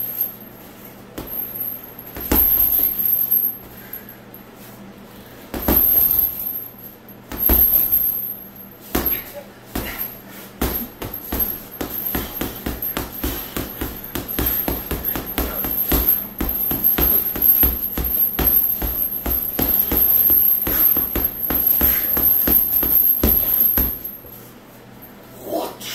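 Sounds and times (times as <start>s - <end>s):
gloves punching heavy bag: 1.2s - 3.3s, 5.5s - 6.6s, 7.3s - 24.3s.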